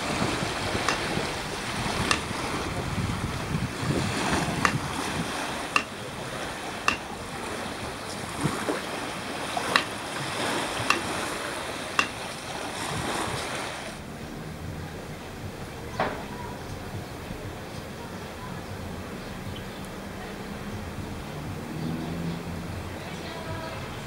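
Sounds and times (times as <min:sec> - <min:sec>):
waves lapping on sandy shore: 0:00.0 - 0:15.7
wind on microphone: 0:00.0 - 0:19.6
sharp clicks: 0:02.1 - 0:02.3.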